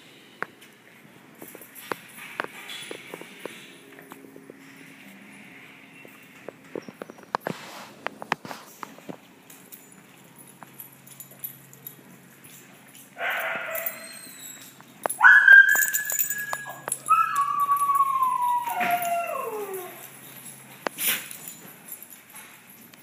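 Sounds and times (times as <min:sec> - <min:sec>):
small dog whining and howling: 0:13.7 - 0:20.2.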